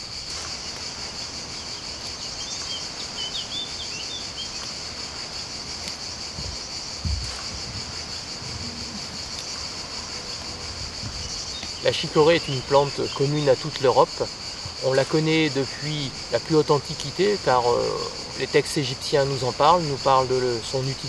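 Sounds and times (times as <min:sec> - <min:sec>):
high-pitched insect chorus: 0:00.0 - 0:21.0
soft low thumps: 0:06.3 - 0:11.8.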